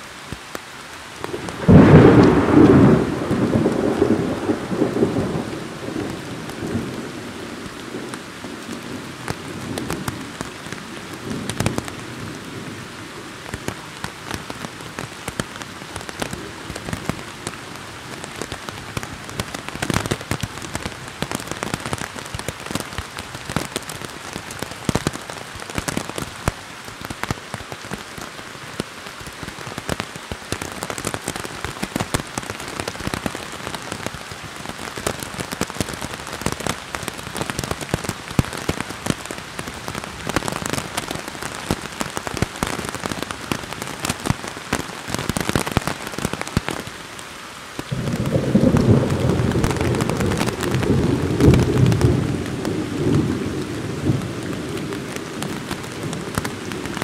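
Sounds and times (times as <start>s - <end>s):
rain falling on foliage and rocks: 0.0s - 57.0s.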